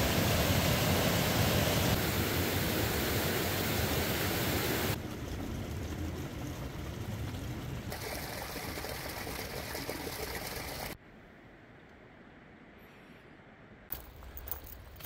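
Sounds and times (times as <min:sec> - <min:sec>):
creek rushing over rocks: 0:07.9 - 0:11.0.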